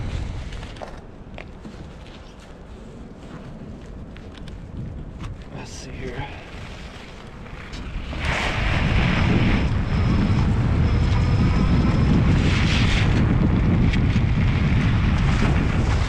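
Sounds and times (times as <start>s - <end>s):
wind rumbling on microphone: 0.0s - 16.0s
electric motor whine: 7.7s - 16.0s.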